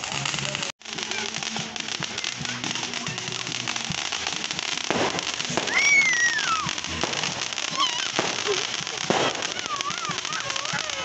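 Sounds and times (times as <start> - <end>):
crowd voices: 0.0 - 11.0
fireworks crackling: 0.0 - 11.0
high firework whistle: 4.9 - 11.0.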